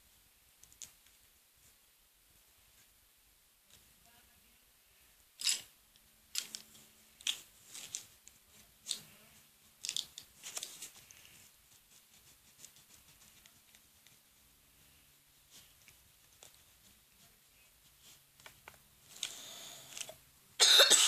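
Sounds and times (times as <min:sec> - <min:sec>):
faint paper handling: 0:06.4 - 0:20.2
paper rustling: 0:09.8 - 0:14.4.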